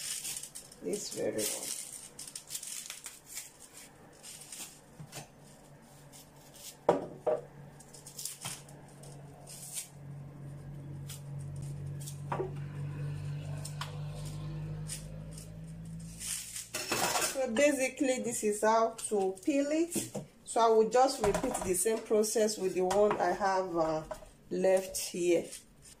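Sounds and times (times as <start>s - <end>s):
low steady hum: 2.9s - 19.6s.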